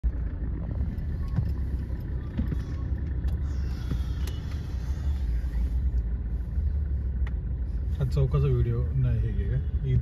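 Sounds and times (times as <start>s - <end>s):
road and engine rumble: 0.0s - 10.0s.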